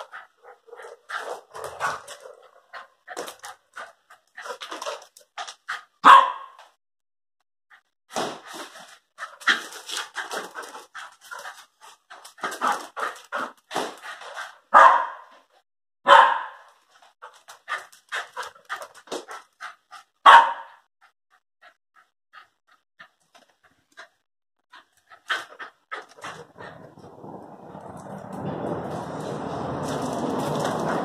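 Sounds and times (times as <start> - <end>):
dogs panting: 0.0 - 6.0, 8.6 - 14.7, 17.2 - 20.2, 21.3 - 28.1
dogs barking: 6.0 - 6.6, 14.7 - 15.3, 16.1 - 16.7, 20.2 - 20.8.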